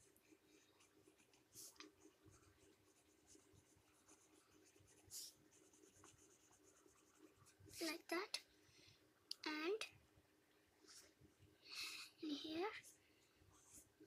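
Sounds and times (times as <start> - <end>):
pencil scratching on paper: 0.0 - 7.9.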